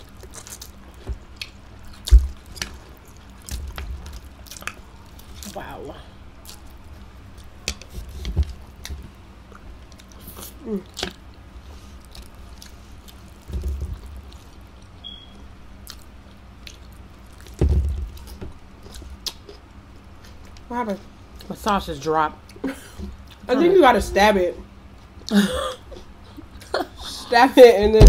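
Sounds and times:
dull thumps: 0:27.7 - 0:28.0.

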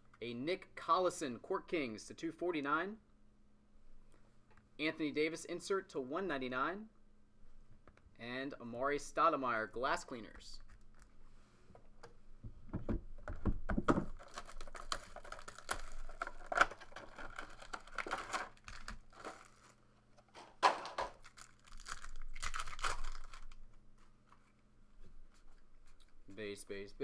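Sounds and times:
cardboard knocks: 0:12.7 - 0:14.2
card packaging crinkling and tearing: 0:13.9 - 0:19.8, 0:21.0 - 0:23.7.

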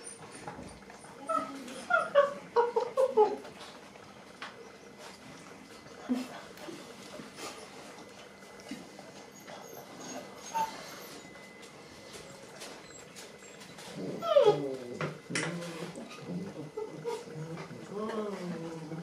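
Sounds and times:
puppy whimpering: 0:00.0 - 0:03.5, 0:09.1 - 0:11.3, 0:12.5 - 0:19.0.

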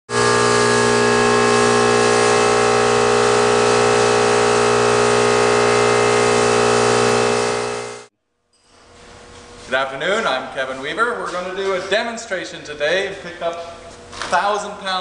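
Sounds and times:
industrial vacuum humming: 0:00.1 - 0:08.1.

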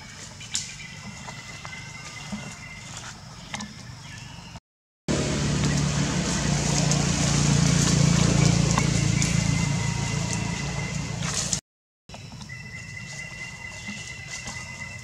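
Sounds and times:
low rumble: 0:05.1 - 0:11.6
clicks and rustles in dry leaves: 0:05.4 - 0:15.0.

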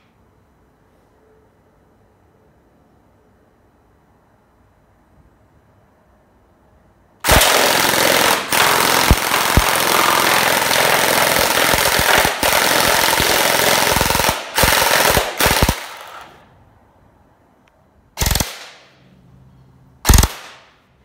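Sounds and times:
gel blaster firing full-auto: 0:07.2 - 0:16.4, 0:18.2 - 0:18.8, 0:20.0 - 0:20.7.

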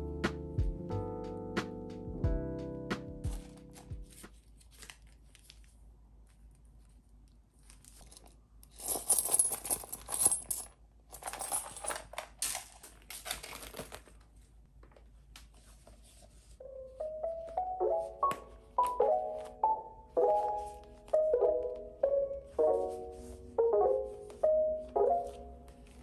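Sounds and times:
coins jingling in a pouch: 0:07.9 - 0:12.8.

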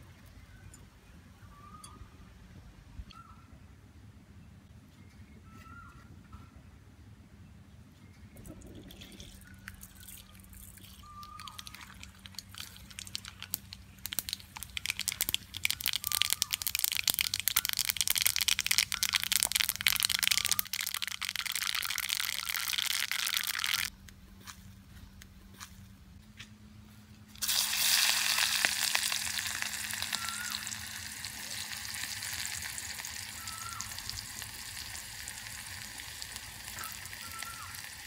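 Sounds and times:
seeds sizzling in hot oil: 0:09.8 - 0:23.9, 0:27.4 - 0:38.0.

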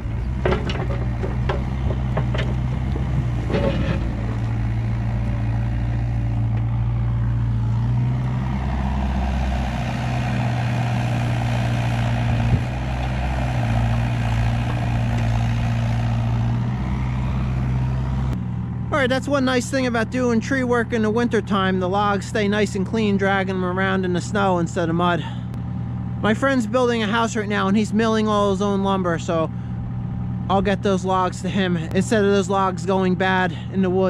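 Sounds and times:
excavator diesel engine working: 0:00.0 - 0:34.0
bucket knocking on log: 0:00.4 - 0:04.6.

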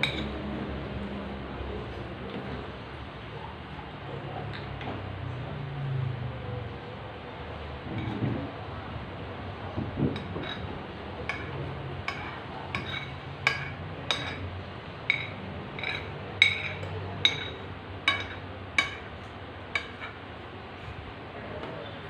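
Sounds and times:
cutlery clinking on plates: 0:00.0 - 0:00.4, 0:10.1 - 0:20.2.

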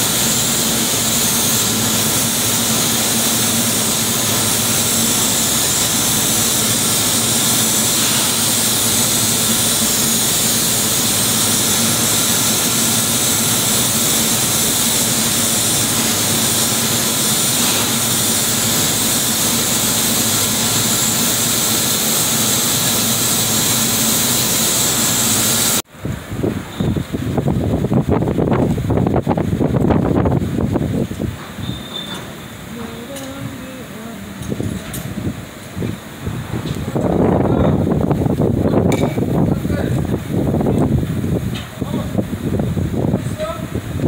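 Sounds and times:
industrial machinery roaring: 0:00.0 - 0:44.0
wind buffeting microphone: 0:26.0 - 0:31.5, 0:34.4 - 0:44.0.

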